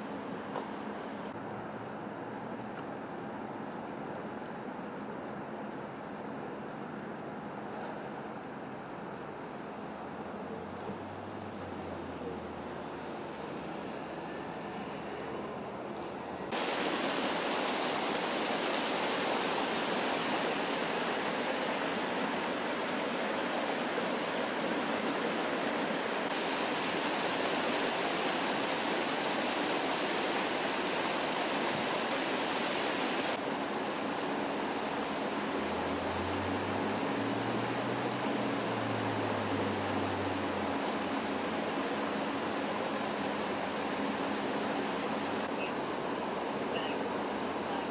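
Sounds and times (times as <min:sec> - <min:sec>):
water gushing across pavement: 0:16.5 - 0:45.5.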